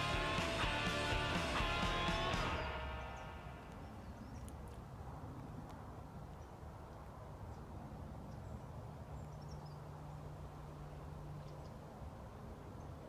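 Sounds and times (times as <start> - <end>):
low hum: 0.0 - 5.8
faint high bird chirps: 2.2 - 4.7.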